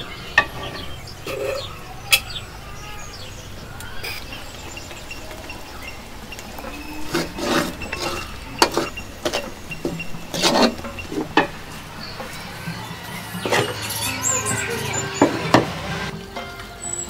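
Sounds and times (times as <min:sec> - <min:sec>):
wooden spoon scraping metal wok: 0:00.0 - 0:01.8, 0:06.6 - 0:16.1.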